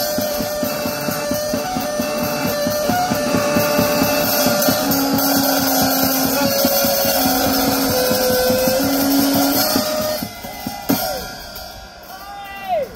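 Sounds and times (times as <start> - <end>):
distorted guitar amplifier noise: 0.0 - 10.9.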